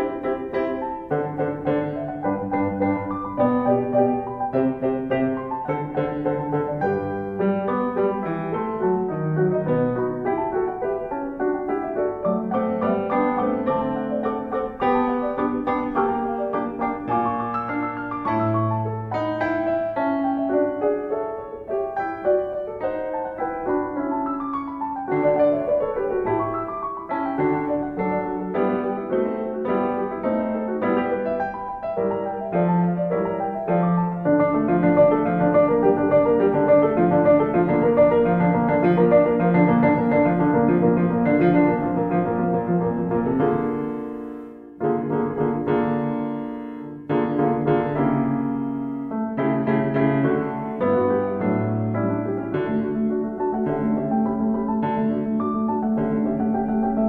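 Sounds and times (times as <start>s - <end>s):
gentle piano music: 0.0s - 57.0s.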